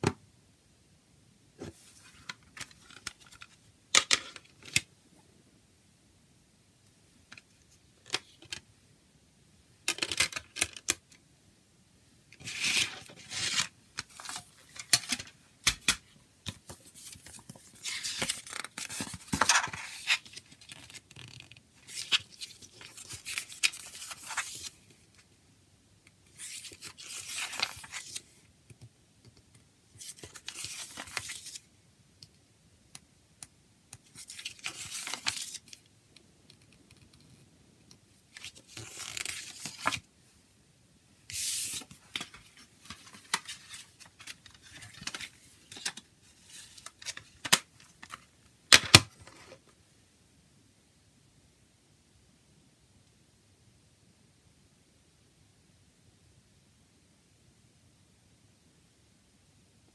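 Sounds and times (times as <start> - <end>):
paper booklet pages rustling: 1.6 - 4.8, 12.4 - 24.8, 26.3 - 28.3, 30.0 - 31.6, 34.1 - 35.8, 38.3 - 40.1, 41.3 - 49.6.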